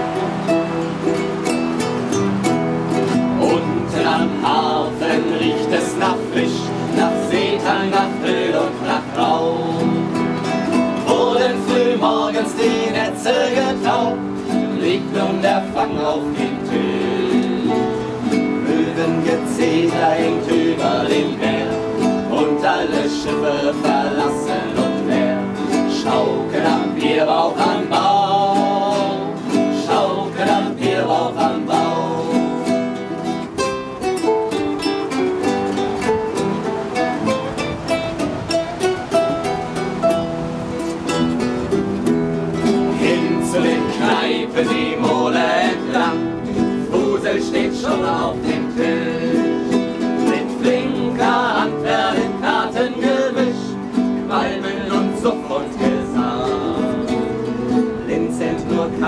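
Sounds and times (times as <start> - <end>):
acoustic guitars strummed: 0.0 - 59.0
men singing: 3.0 - 33.0, 42.6 - 59.0.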